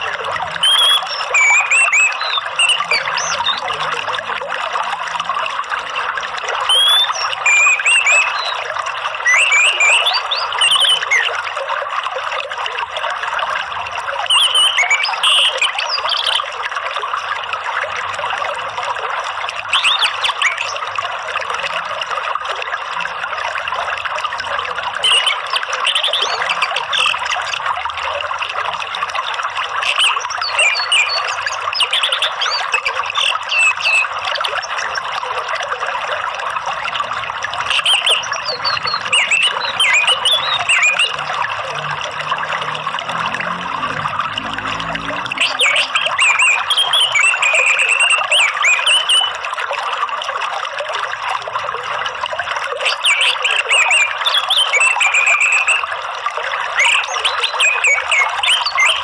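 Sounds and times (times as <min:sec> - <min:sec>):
birds chirping: 0:00.0 - 0:04.0, 0:06.7 - 0:11.4, 0:19.7 - 0:20.8, 0:30.0 - 0:34.1, 0:37.7 - 0:49.3, 0:52.9 - 0:55.8, 0:56.8 - 0:59.0
running water: 0:00.0 - 0:59.0.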